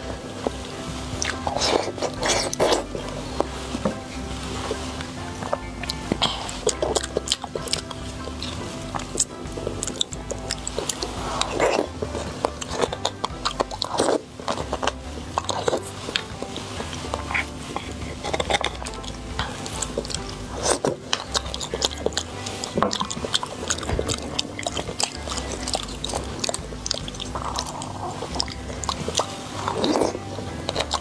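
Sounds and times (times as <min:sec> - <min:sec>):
wet chewing and lip smacking: 0:00.0 - 0:31.0
sharp mouth clicks: 0:05.0 - 0:16.3.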